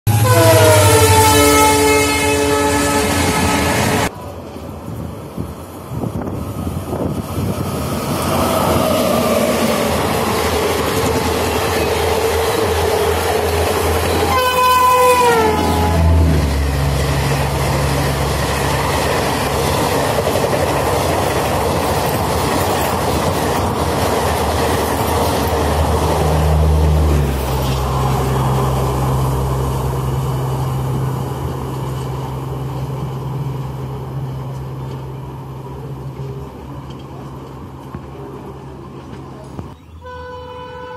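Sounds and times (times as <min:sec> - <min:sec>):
train horn: 0:00.1 - 0:04.1, 0:14.0 - 0:17.1, 0:40.0 - 0:40.9
train rumble and wheel clatter: 0:00.1 - 0:40.9.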